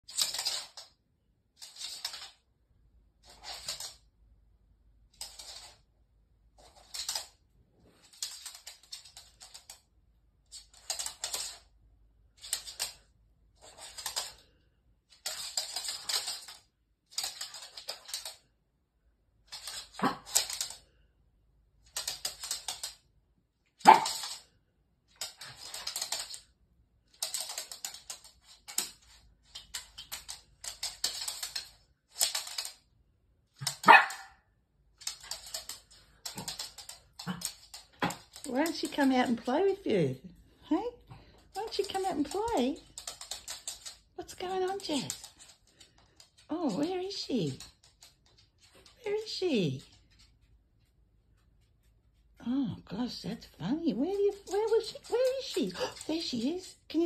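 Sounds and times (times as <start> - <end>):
dog claws clattering on floor: 0.0 - 2.5, 3.2 - 4.1, 5.1 - 5.8, 6.5 - 11.7, 12.3 - 18.5, 19.4 - 21.0, 21.8 - 23.1, 23.7 - 32.9, 33.5 - 34.3, 34.9 - 39.8, 41.1 - 49.1, 54.2 - 57.0.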